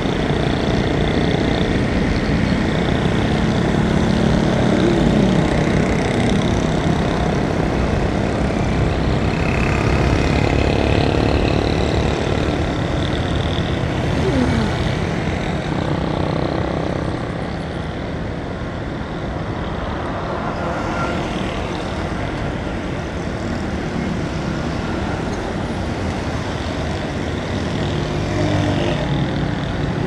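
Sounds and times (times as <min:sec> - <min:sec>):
motorcycle engine: 0:00.0 - 0:18.0
road and traffic noise: 0:00.0 - 0:30.0.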